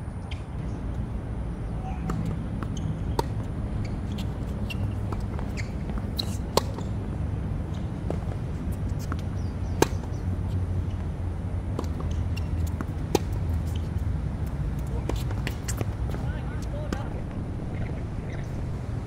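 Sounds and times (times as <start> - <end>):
steady low rumble: 0.0 - 19.0
tennis ball struck by racquet: 2.0 - 3.4, 4.2 - 7.0, 9.0 - 10.2.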